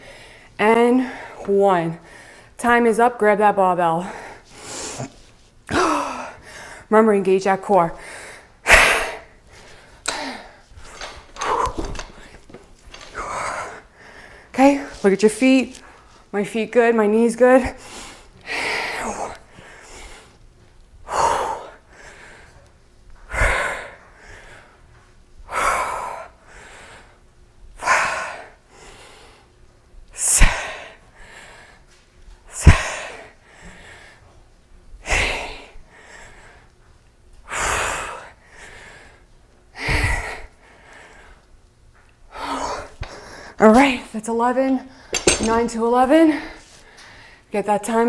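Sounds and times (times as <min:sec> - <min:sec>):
woman breathing hard: 0:05.7 - 0:06.9, 0:08.0 - 0:14.6, 0:17.8 - 0:20.4, 0:21.0 - 0:22.7, 0:23.3 - 0:24.8, 0:25.4 - 0:27.2, 0:30.4 - 0:34.3, 0:35.0 - 0:36.7, 0:37.4 - 0:41.5, 0:42.3 - 0:43.6.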